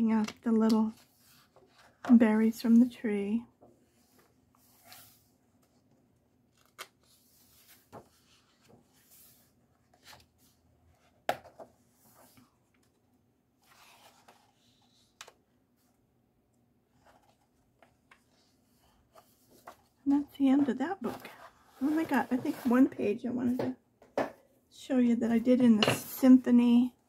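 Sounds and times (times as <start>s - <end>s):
paper pages turning: 6.4s - 10.6s, 13.6s - 15.4s.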